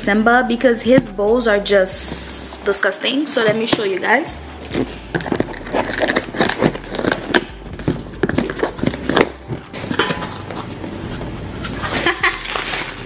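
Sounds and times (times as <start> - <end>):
cardboard box being opened: 4.6 - 9.6.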